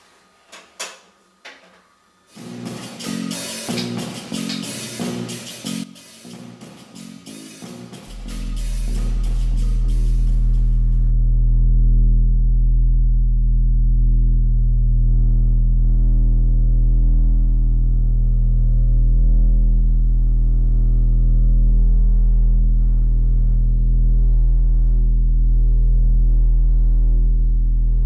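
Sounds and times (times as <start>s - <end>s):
low humming drone: 8.0s - 28.0s.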